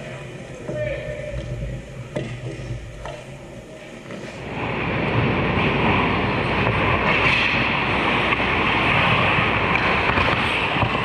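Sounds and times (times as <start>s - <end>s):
skates hissing on ice: 2.6s - 11.0s
stick and puck clicks: 9.7s - 11.0s.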